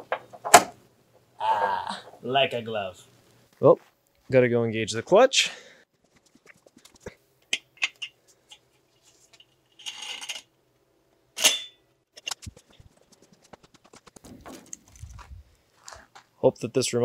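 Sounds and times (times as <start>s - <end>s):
metallic clunk with ring: 11.4s - 11.8s.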